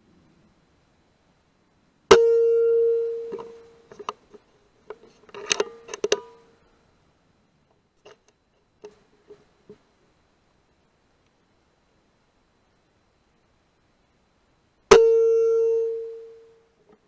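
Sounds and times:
rifle handling clicks and clatter: 0:03.4 - 0:06.3.

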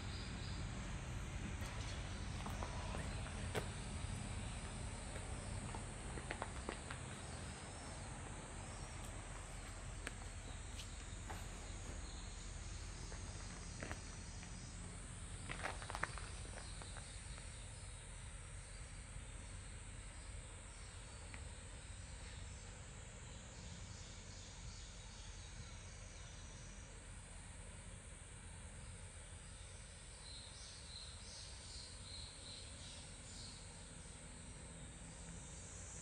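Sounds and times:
faint low rumble: 0:00.0 - 0:21.9
insect chorus: 0:00.0 - 0:36.0.

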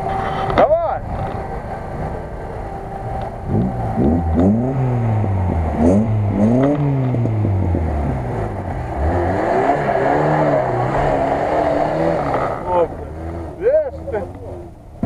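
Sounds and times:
rushing noise: 0:00.0 - 0:14.1
car engine revving hard: 0:01.4 - 0:14.5.

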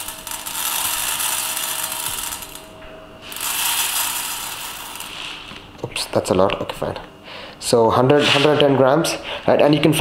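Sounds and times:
dry lentils rattling into metal pot: 0:00.0 - 0:05.4.

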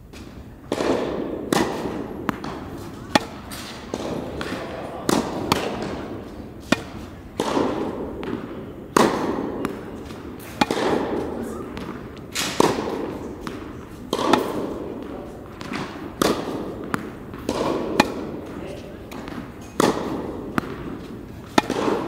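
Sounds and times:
tennis balls hit with rackets: 0:00.0 - 0:22.0.

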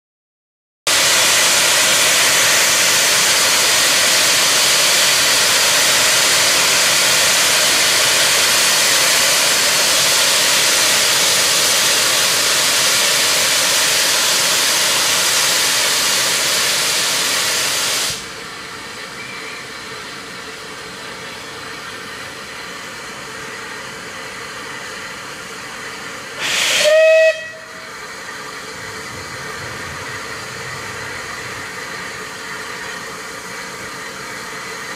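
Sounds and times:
steam hissing from safety valves: 0:00.9 - 0:34.9
steam locomotive whistle blast: 0:26.4 - 0:28.0.

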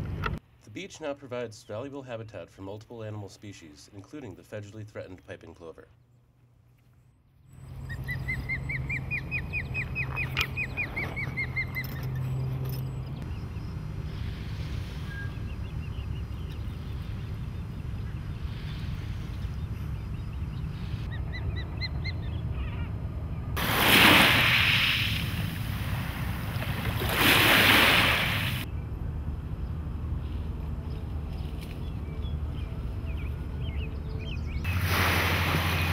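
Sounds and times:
bird chirps: 0:07.3 - 0:13.9, 0:15.0 - 0:18.5, 0:19.4 - 0:23.0
bird trill: 0:07.5 - 0:13.8, 0:20.0 - 0:23.0, 0:30.9 - 0:34.7.

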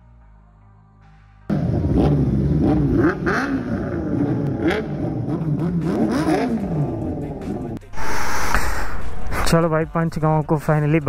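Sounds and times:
vehicle engines revving: 0:01.5 - 0:07.8.

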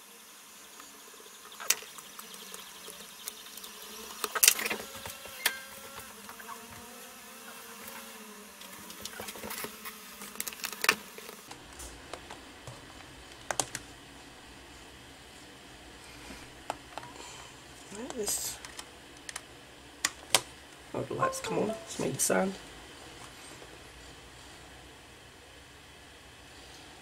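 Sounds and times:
faint steady buzz: 0:00.0 - 0:18.2.

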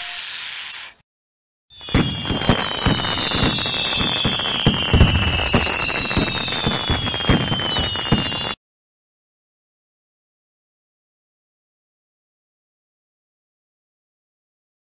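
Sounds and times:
falling whistle: 0:01.7 - 0:08.6
fireworks bangs and crackles: 0:01.8 - 0:08.6.

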